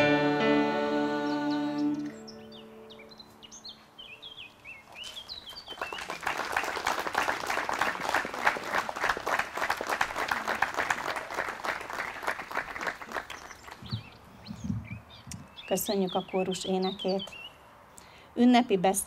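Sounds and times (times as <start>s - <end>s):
bird chirping: 1.0s - 6.2s, 13.3s - 18.2s
audience applauding: 5.5s - 13.9s.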